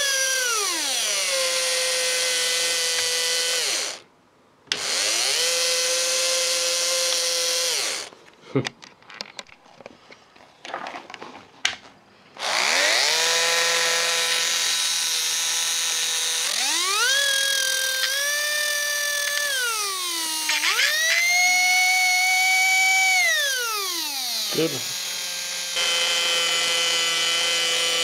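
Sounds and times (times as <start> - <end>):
electric motor clicks and crackles: 0.0 - 4.0, 6.7 - 8.1, 12.4 - 28.0
electric motor high whine: 0.0 - 4.0, 4.8 - 8.1, 12.4 - 28.0.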